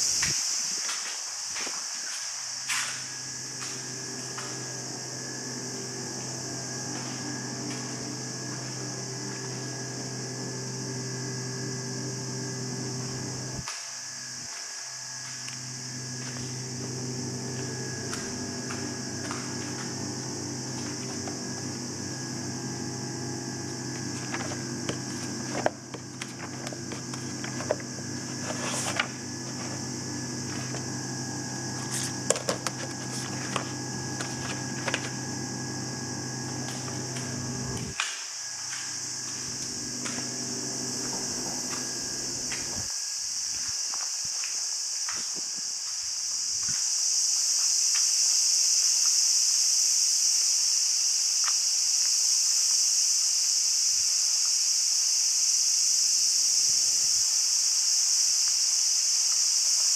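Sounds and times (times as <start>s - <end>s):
high hiss: 0.0s - 59.9s
low machine hum: 2.7s - 42.9s.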